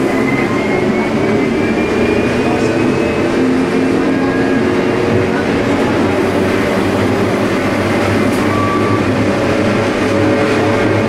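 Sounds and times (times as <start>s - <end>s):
railway car rumbling on track: 0.0s - 11.0s
brief higher tone: 8.2s - 9.1s.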